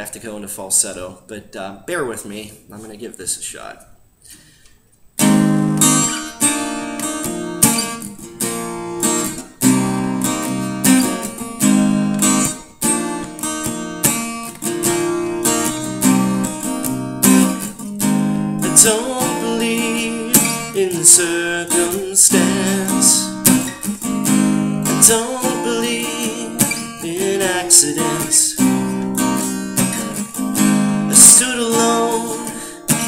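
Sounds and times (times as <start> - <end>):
acoustic guitar strumming: 5.2 - 33.0
man singing: 18.6 - 23.7, 24.8 - 29.0, 30.9 - 33.0.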